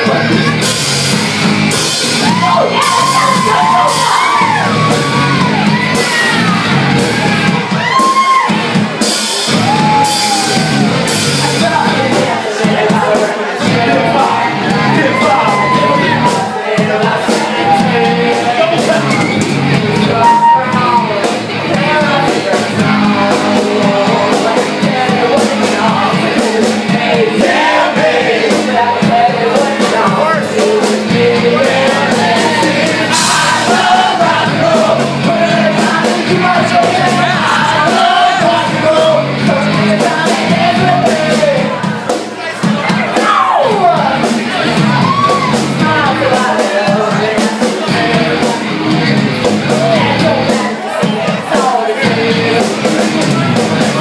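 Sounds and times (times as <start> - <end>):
bass guitar: 0.0 - 54.0
drum kit with cymbal hits: 0.0 - 54.0
shouts and whoops: 2.2 - 8.6, 9.5 - 11.0, 14.8 - 16.6, 44.8 - 45.6
lead singer singing: 9.7 - 54.0.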